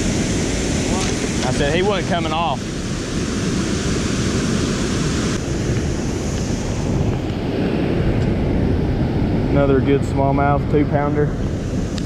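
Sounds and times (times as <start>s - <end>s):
moving water: 0.0s - 8.2s
wind buffeting microphone: 0.0s - 12.0s.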